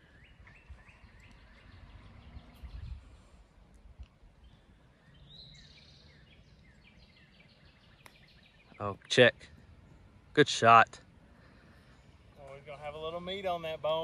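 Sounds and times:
small birds chirping: 0:00.0 - 0:14.0
wind rumble on microphone: 0:00.4 - 0:04.7.

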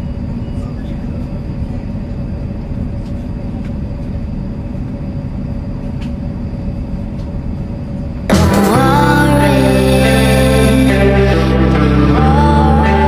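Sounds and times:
train rumble inside carriage: 0:00.0 - 0:08.3
loud music: 0:08.3 - 0:13.0.

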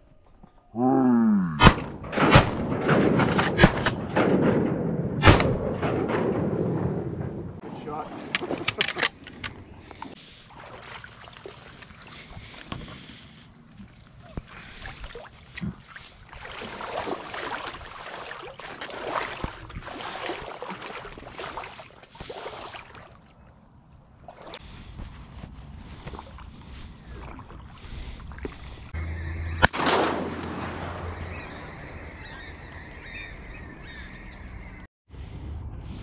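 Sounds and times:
water splashing and sloshing: 0:07.6 - 0:29.0.

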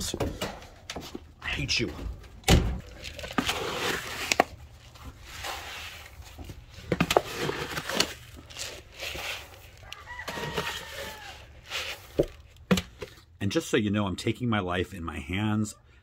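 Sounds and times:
grain rustling and scraping: 0:02.8 - 0:12.5.

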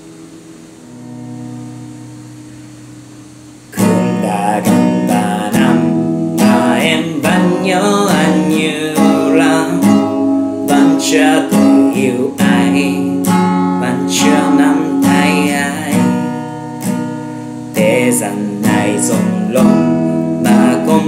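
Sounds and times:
acoustic guitar strumming: 0:00.0 - 0:21.0
man singing a slow ballad: 0:03.8 - 0:17.0, 0:17.7 - 0:21.0.

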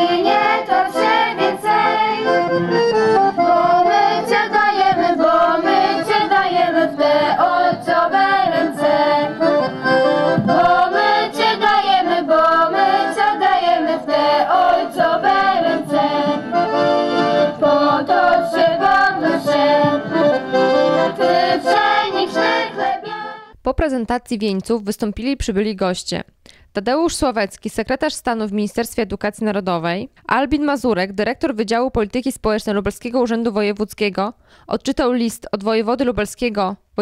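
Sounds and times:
accordion music: 0:00.0 - 0:23.6.

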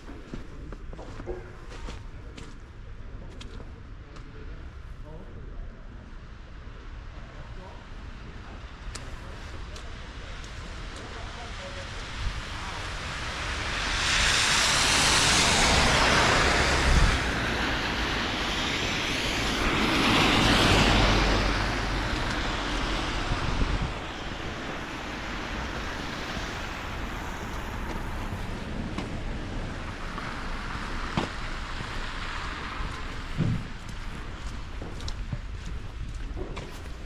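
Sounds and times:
tyres hissing through slush: 0:10.6 - 0:28.6.

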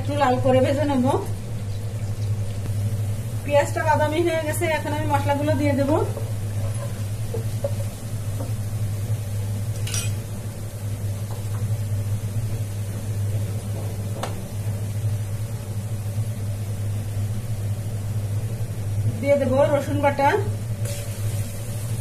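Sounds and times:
onions sizzling in oil: 0:00.0 - 0:22.0
spoon clinking against pan: 0:09.8 - 0:10.2.

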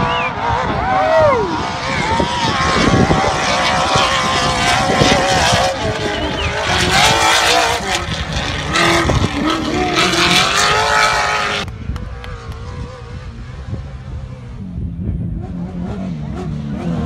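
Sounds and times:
truck engine at high revs: 0:00.0 - 0:17.0.

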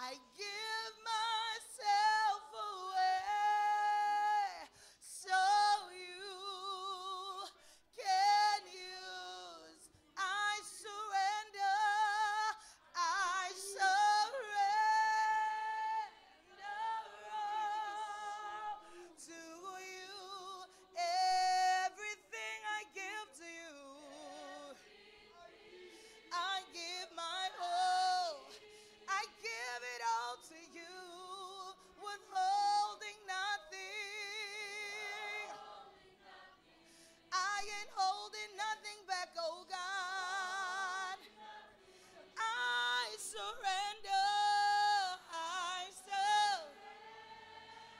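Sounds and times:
woman singing with vibrato: 0:05.2 - 0:24.8, 0:42.4 - 0:46.8.

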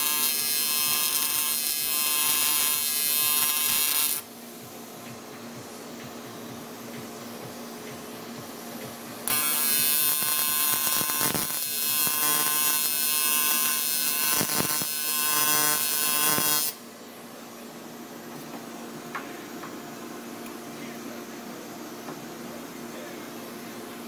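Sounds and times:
welding arc buzzing: 0:00.0 - 0:16.9.

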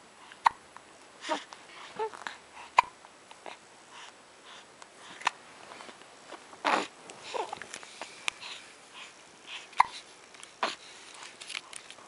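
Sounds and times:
baby cooing: 0:01.2 - 0:03.6, 0:06.6 - 0:07.6
baby hiccups: 0:02.8 - 0:03.0, 0:09.8 - 0:10.0.

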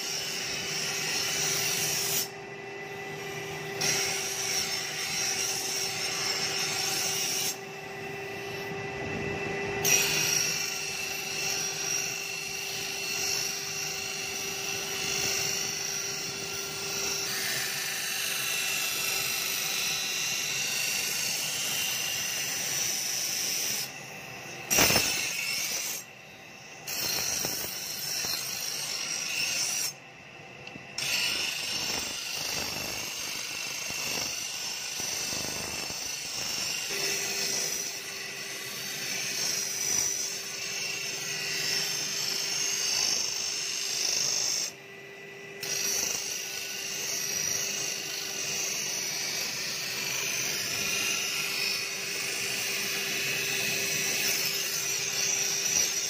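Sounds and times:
grinding wheel humming: 0:30.6 - 0:56.0
blade grinding on wheel: 0:31.0 - 0:44.8, 0:45.6 - 0:56.0.

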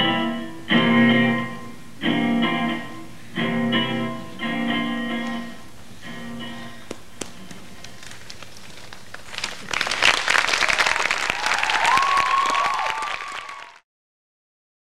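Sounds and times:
guitar notes: 0:00.0 - 0:07.5
audience applause: 0:07.9 - 0:13.8
audience whoops: 0:09.7 - 0:13.8.

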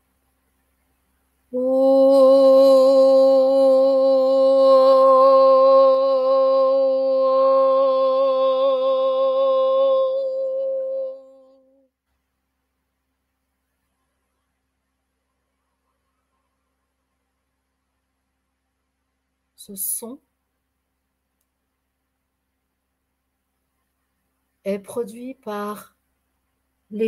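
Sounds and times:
woman singing long steady vowel: 0:01.5 - 0:11.9.

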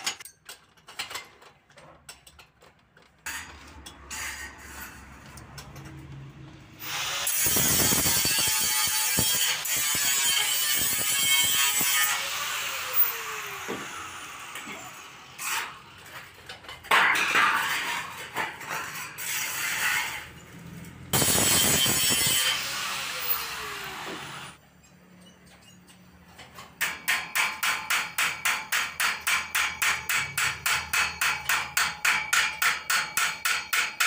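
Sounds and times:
steel blades rattling and scraping: 0:00.0 - 0:06.3, 0:15.4 - 0:22.6.

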